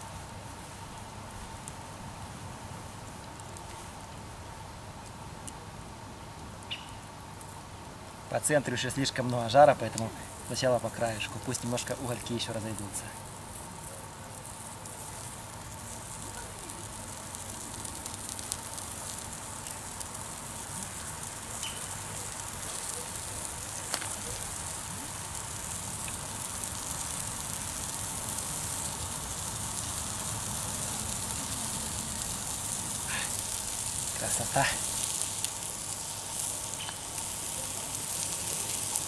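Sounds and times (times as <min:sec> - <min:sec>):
eggplant sizzling on grill: 0:00.0 - 0:39.0
sharp pops: 0:23.8 - 0:24.4.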